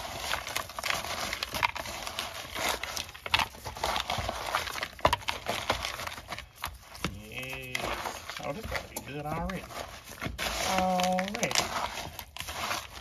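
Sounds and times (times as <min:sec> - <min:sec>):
wet squishing and slapping: 0:00.0 - 0:13.0.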